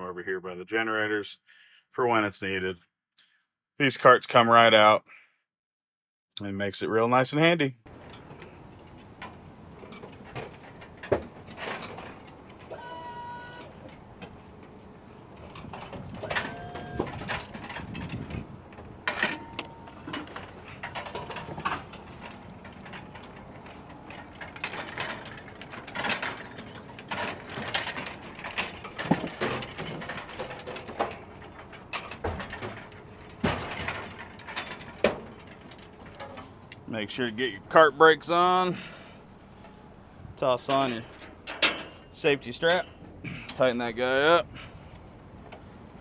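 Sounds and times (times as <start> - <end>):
metal stands rattling and clanking: 7.9 - 12.8, 13.7 - 37.8, 38.4 - 46.0
cart casters rolling: 7.9 - 46.0.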